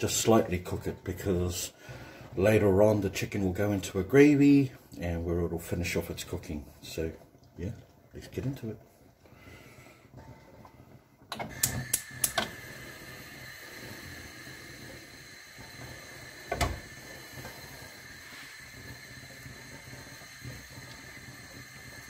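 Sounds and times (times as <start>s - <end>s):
gas burner hissing: 0.0s - 22.0s
stove igniter clicks: 11.3s - 12.6s.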